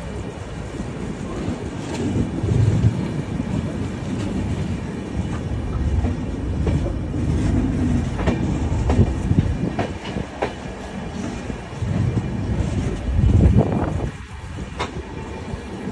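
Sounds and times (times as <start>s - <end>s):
train wheels rumbling: 0.0s - 15.9s
wheels clicking over rail joints: 1.8s - 15.1s.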